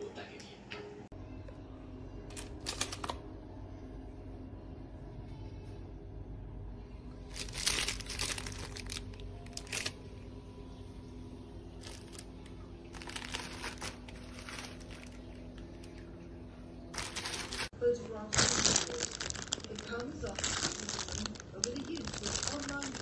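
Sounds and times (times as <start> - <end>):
low hum: 1.1 - 17.8
plastic bags crinkling: 7.3 - 10.0, 11.8 - 12.3, 12.9 - 16.0, 16.9 - 23.0.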